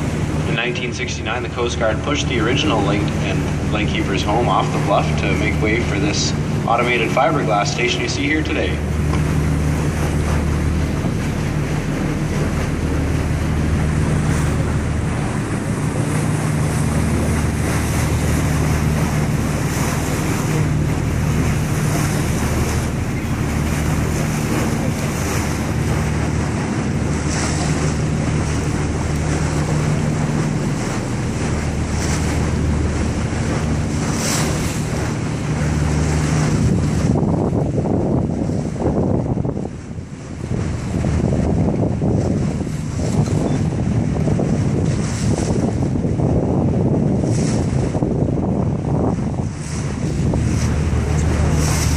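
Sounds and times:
boat engine drone: 0.0s - 51.9s
water rushing: 0.0s - 51.9s
wind buffeting microphone: 0.0s - 51.9s.

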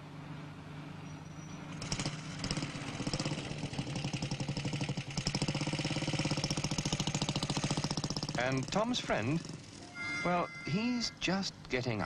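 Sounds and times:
motorcycle engine running: 1.7s - 9.9s.

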